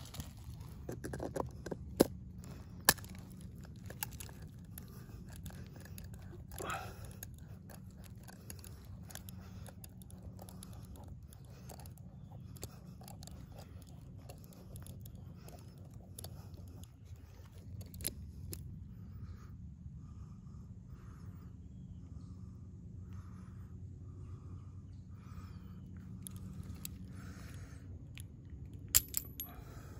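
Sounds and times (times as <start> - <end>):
low steady rumble: 0.0 - 29.9.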